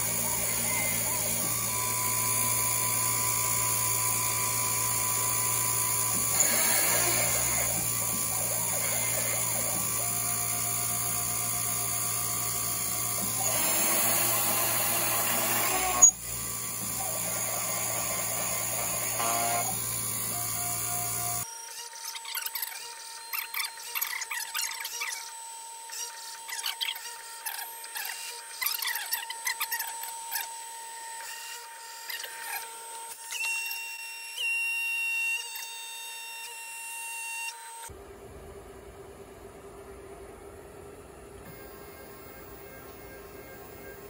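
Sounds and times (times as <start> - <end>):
end mill cutting aluminium: 0.0 - 21.4
mill spindle whining: 0.0 - 21.4, 37.9 - 44.0.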